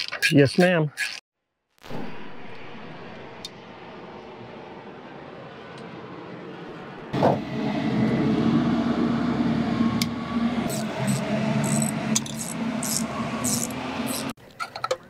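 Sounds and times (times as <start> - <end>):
motor humming: 7.2 - 14.4.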